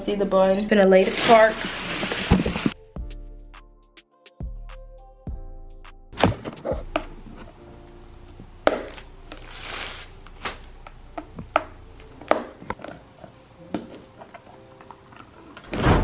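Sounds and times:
plastic rustling: 0.9s - 2.8s, 8.8s - 16.0s.

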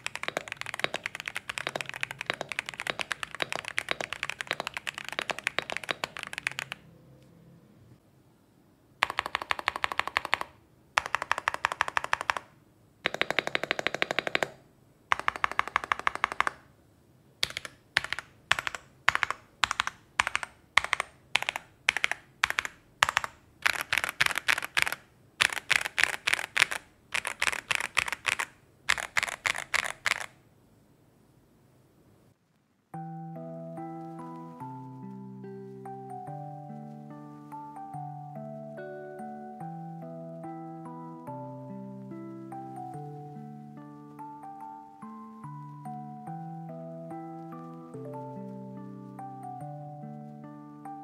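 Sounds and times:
mechanical keyboard typing: 0.0s - 6.9s, 9.0s - 16.7s, 17.4s - 30.4s.

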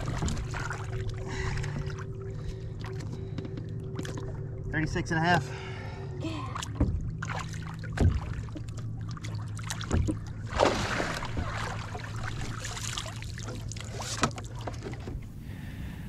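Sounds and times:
water splashing against boat: 0.0s - 4.6s, 6.4s - 15.7s
boat motor hum: 0.0s - 16.0s
light knocks against hull: 6.7s - 15.3s.

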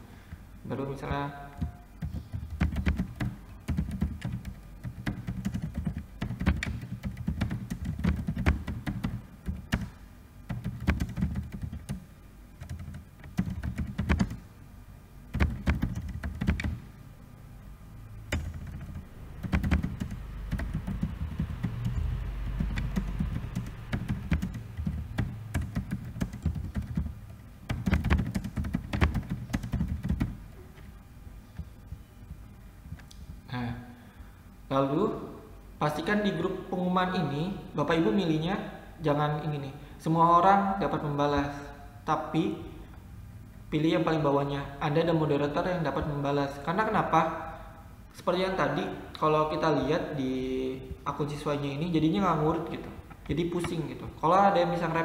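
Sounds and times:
typing on computer keyboard: 1.6s - 12.0s, 12.6s - 14.4s, 15.3s - 16.8s, 18.3s - 30.4s.

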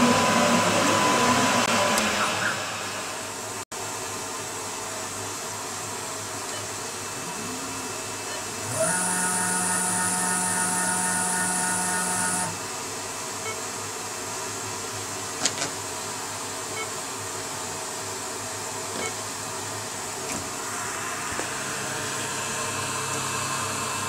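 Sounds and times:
stepper motors whining: 6.5s - 12.6s.

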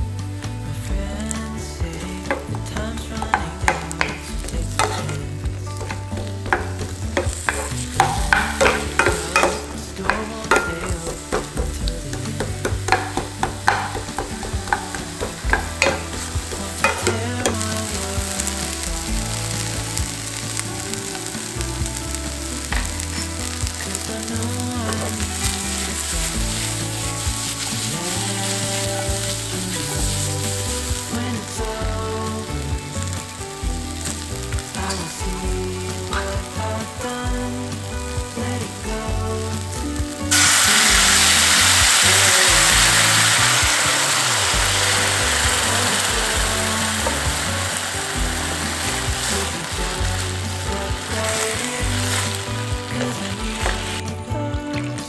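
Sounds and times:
onions sizzling in a frying pan: 0.0s - 54.4s
spatula tapping and scraping: 2.2s - 19.2s.

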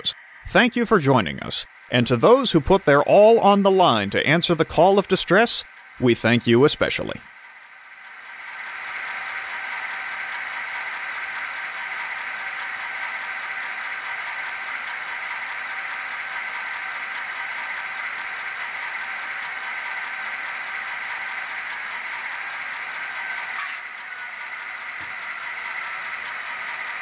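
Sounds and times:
steady tones: 0.0s - 8.8s
diesel locomotive engine idling: 0.0s - 27.0s.

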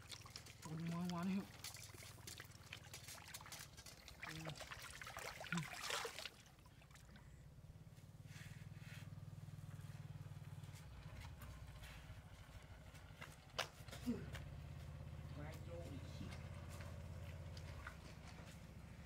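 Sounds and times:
water splashing and trickling: 0.0s - 7.4s, 14.9s - 19.0s
small engine running: 7.7s - 19.0s.

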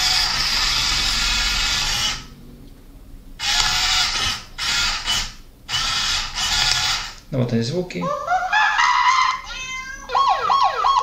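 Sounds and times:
electric motors whirring: 0.0s - 2.4s, 3.4s - 7.2s.

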